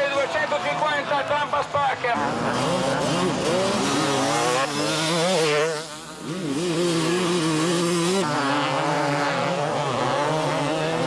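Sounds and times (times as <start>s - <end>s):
motocross bike engine revving: 2.2s - 11.0s.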